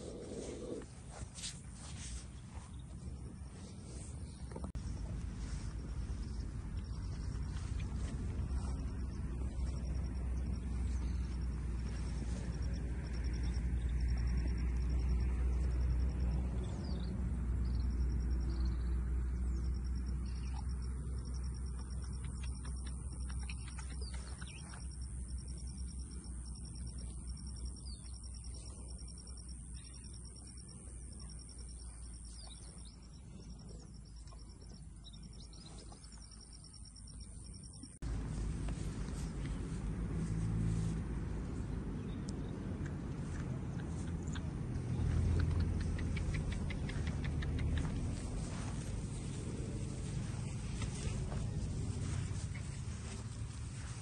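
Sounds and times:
low rumble: 0.0 - 54.0
insects chirping rapidly: 19.5 - 41.0, 43.7 - 54.0
bird chirps: 20.2 - 25.8, 43.7 - 49.0
wind rumble on microphone: 38.0 - 54.0
faint bird calls: 43.7 - 48.9
high insect trill: 44.0 - 54.0.

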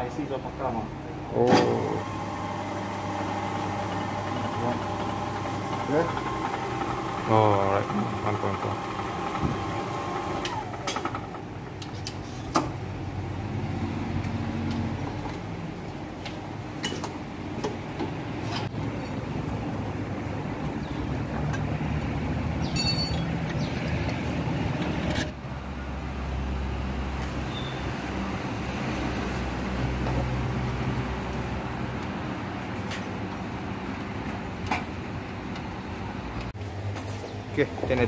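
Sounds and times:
hand tools clicking and clinking: 22.6 - 23.7.

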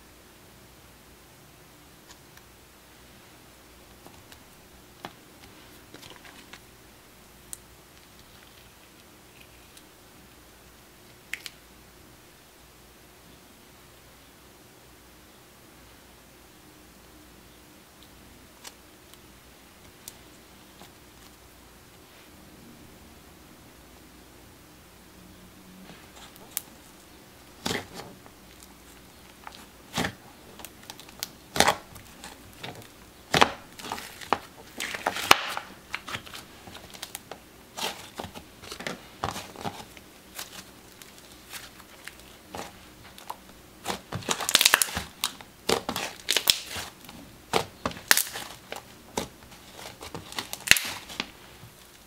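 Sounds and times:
slime crackling and squelching: 25.8 - 52.0.

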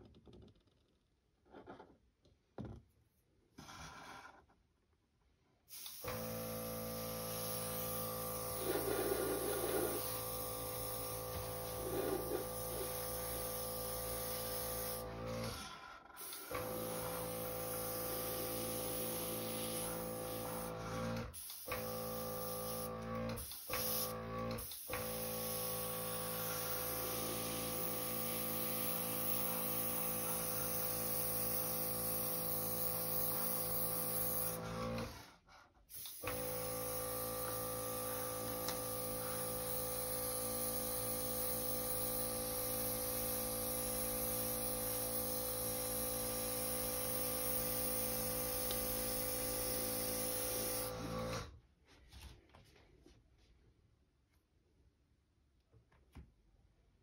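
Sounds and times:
airbrush spraying hiss: 5.7 - 15.0, 16.2 - 20.8, 21.4 - 34.6, 35.9 - 50.9
compressor humming: 5.9 - 15.3, 16.2 - 20.9, 21.7 - 34.9, 36.2 - 51.0.

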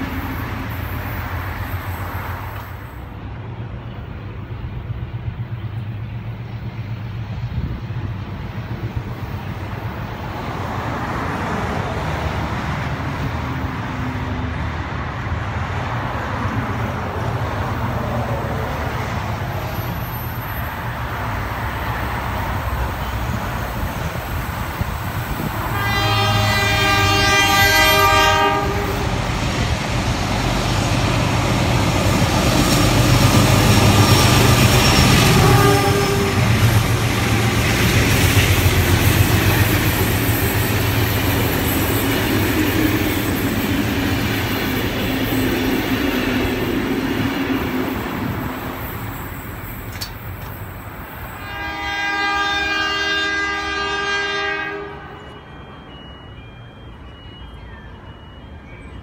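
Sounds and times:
diesel locomotive engine drone: 0.0 - 59.0
train horn blast: 25.4 - 29.3, 34.8 - 37.7, 51.4 - 55.5.

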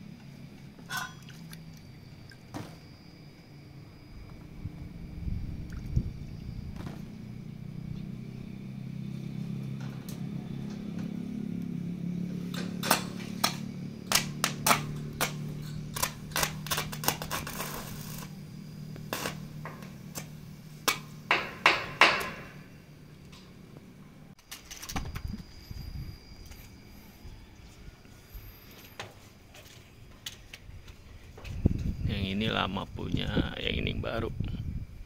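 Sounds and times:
steady low hum: 0.0 - 35.0
welding arc crackling: 11.3 - 22.8
metal taps and knocks: 21.3 - 22.6.

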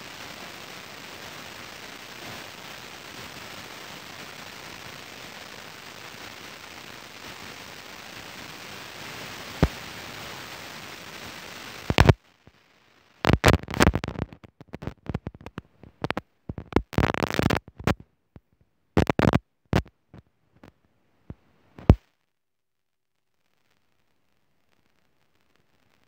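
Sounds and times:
phone microphone hiss: 0.0 - 22.0
rough scratchy bursts: 11.2 - 12.2, 13.2 - 18.0, 19.0 - 19.9.

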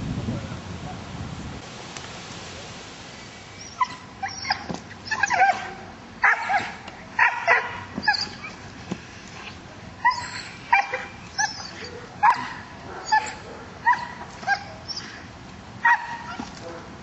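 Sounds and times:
dog yipping and barking: 3.6 - 8.6, 10.0 - 16.5.

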